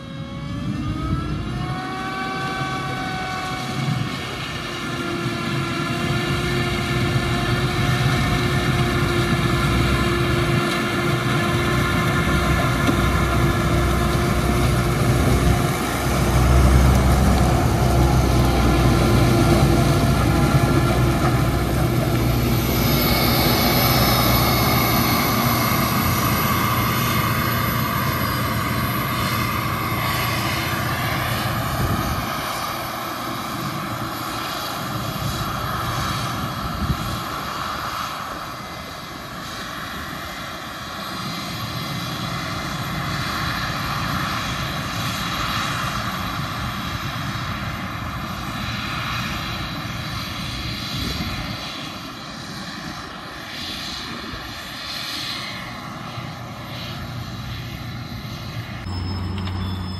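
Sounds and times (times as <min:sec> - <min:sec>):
diesel engines under load: 0:00.1 - 0:36.8, 0:55.7 - 0:59.9.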